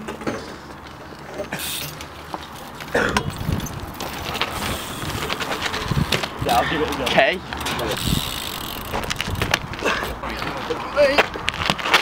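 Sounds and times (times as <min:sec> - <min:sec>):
bike clicks: 0:00.7 - 0:10.8
bike tyre rumble on tarmac: 0:01.4 - 0:12.0.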